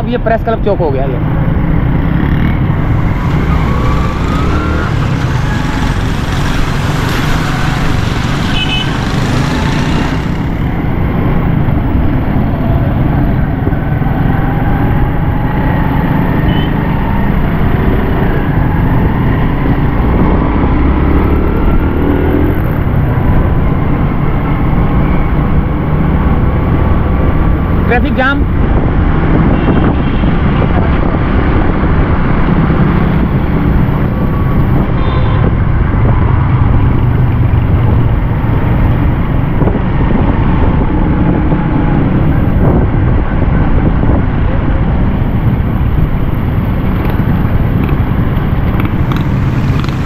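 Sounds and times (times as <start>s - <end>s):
wind rushing over microphone: 1.1s - 50.0s
motorcycle engine running: 1.3s - 11.9s, 45.6s - 50.0s
tyres hissing on wet road: 2.8s - 10.8s, 48.6s - 50.0s.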